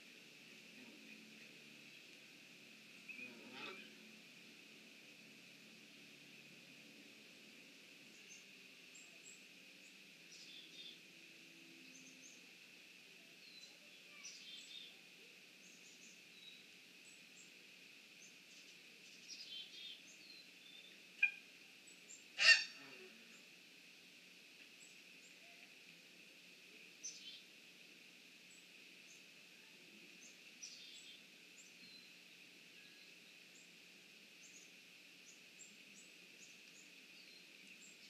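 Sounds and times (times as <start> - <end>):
faint high hiss: 0.0 - 38.0
faint small-bird chirps: 3.0 - 4.0, 8.1 - 11.0, 11.8 - 12.5, 13.2 - 17.6, 18.2 - 23.4, 27.0 - 27.4, 28.5 - 32.1, 32.7 - 33.7, 34.4 - 38.0
loud bird calls: 22.1 - 22.8.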